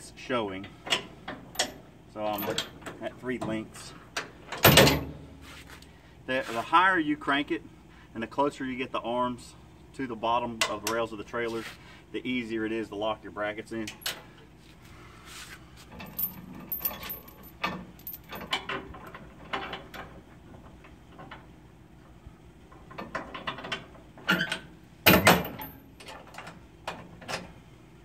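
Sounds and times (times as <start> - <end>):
chains and brackets clanking: 0.9 - 3.6, 15.8 - 21.4, 22.8 - 26.6.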